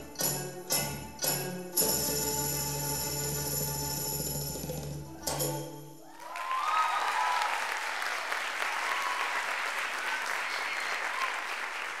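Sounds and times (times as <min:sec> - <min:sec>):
people cheering: 0:06.0 - 0:12.0
audience applauding: 0:06.1 - 0:12.0.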